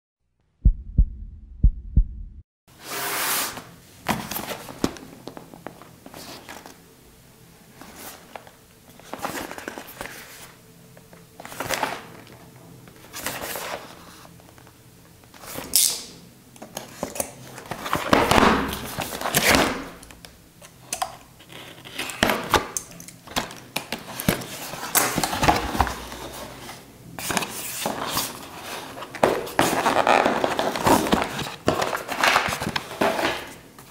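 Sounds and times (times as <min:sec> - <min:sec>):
deep thumps of intro sting: 0:00.6 - 0:02.4
cardboard box rustling and scraping: 0:23.4 - 0:33.6.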